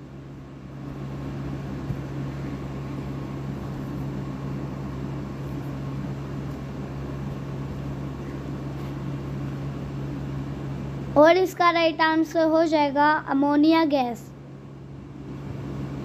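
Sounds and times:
machine-like drone with hiss: 0:00.0 - 0:12.4.

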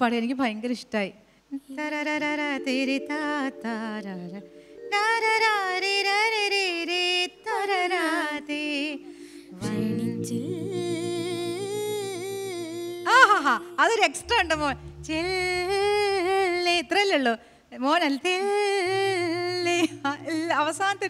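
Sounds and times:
woman singing: 0:01.5 - 0:21.0
boy singing: 0:01.6 - 0:16.9
sustained keyboard chord: 0:08.9 - 0:16.6, 0:18.9 - 0:21.0.

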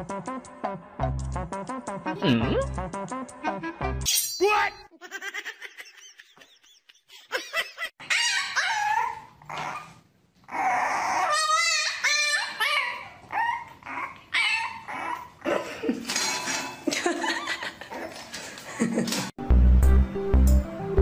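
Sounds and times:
puppy whining and howling: 0:08.0 - 0:15.5.

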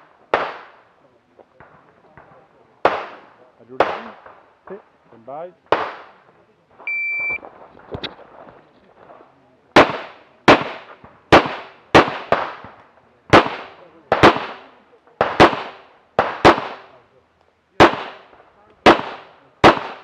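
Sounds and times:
pistol shots with echo: 0:00.3 - 0:00.8, 0:01.6 - 0:04.4, 0:05.7 - 0:06.2, 0:09.7 - 0:17.0, 0:17.8 - 0:20.0.

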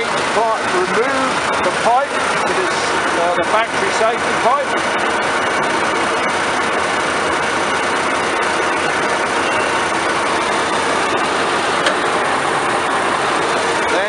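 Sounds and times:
combine engine droning: 0:00.0 - 0:14.0.

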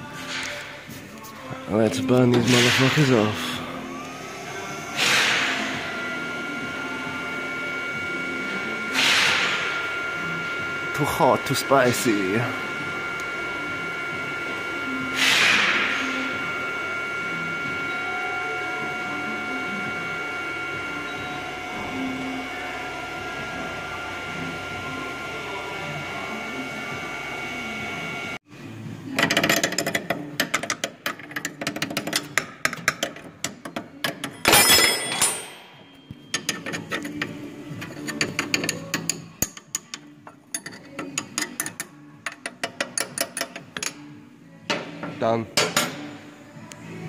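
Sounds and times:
induction heater whining: 0:00.0 - 0:47.0
spanner clicks and knocks: 0:29.2 - 0:34.5, 0:36.3 - 0:44.0.

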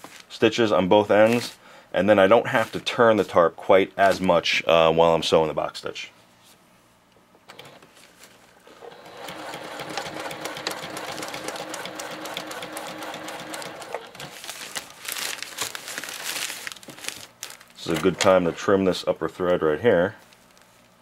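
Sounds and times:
sewing machine stitching: 0:08.7 - 0:14.4.

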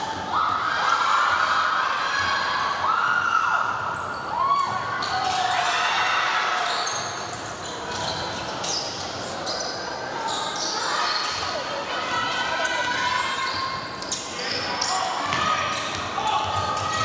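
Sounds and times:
sneakers squeaking: 0:03.7 - 0:05.7, 0:06.6 - 0:11.7, 0:12.4 - 0:17.0.

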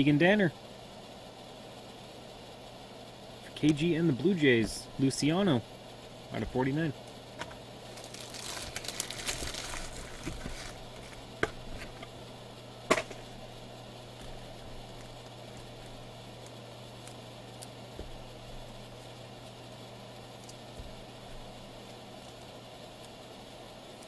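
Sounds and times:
low electrical hum: 0:00.0 - 0:24.0
rustling and crackling: 0:06.4 - 0:23.2.

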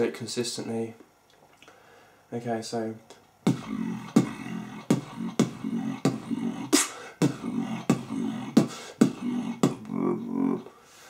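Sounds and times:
beatboxed hissing snare: 0:03.4 - 0:10.2
hummed buzzing bass: 0:03.4 - 0:10.6.

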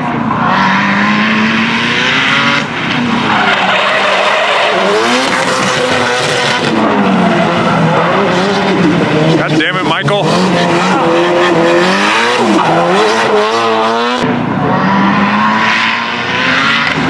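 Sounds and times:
car engine revving: 0:00.0 - 0:17.0
tyre screech: 0:03.2 - 0:08.2.

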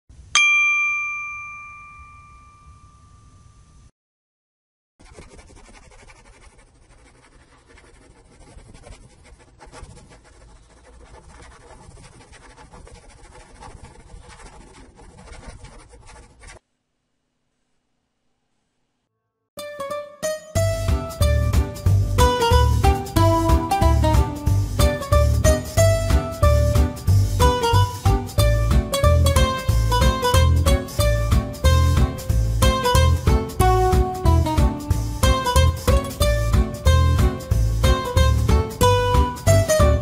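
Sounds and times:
bright chime ding: 0:00.3 - 0:03.8
marker writing on whiteboard: 0:05.0 - 0:16.6.

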